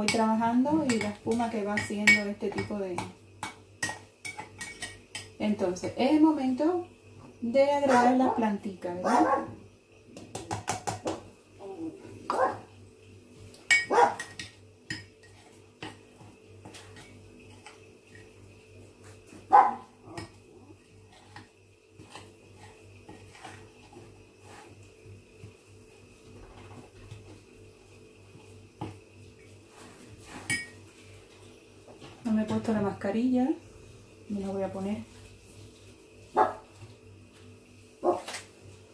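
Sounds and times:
spoon scraping ceramic mortar: 0:21.0 - 0:24.8, 0:29.8 - 0:30.8.

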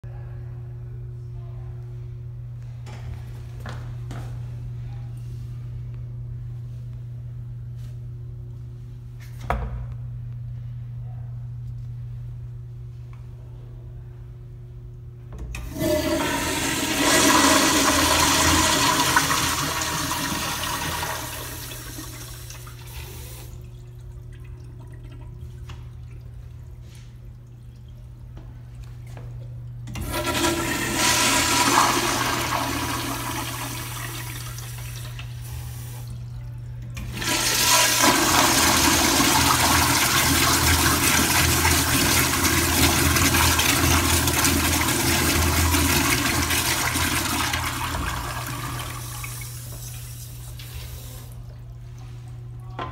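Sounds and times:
steady low hum: 0:00.0 - 0:52.9
toilet flushing: 0:15.5 - 0:28.2, 0:29.8 - 0:51.9.

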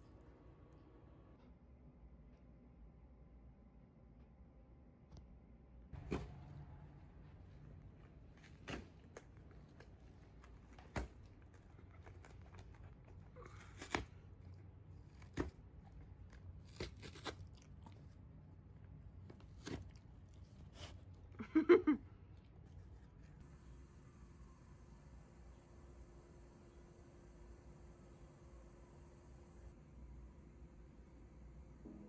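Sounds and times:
dog chewing cardboard: 0:06.0 - 0:21.3.

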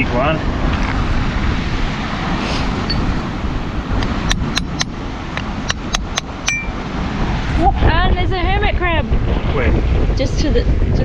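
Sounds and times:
wind rumbling on microphone: 0:00.0 - 0:11.0
shell tapping on rocks: 0:04.0 - 0:06.7.

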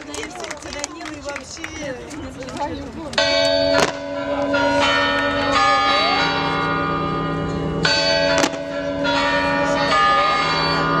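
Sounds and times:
sharp crack: 0:03.7 - 0:04.1.

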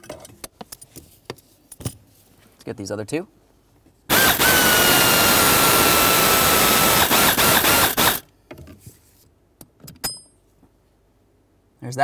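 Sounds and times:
power screwdriver whine: 0:04.1 - 0:08.2.

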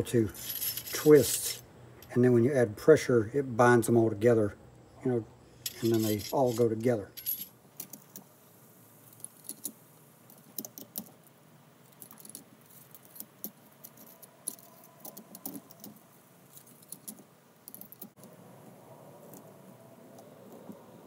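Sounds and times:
steel clutch discs clinking: 0:05.7 - 0:07.9.

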